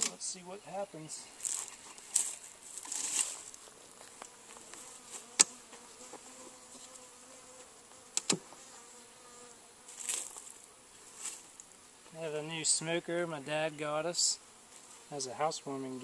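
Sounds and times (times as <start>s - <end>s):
honeybees buzzing: 0.0s - 16.0s
sharp click: 8.2s - 8.4s.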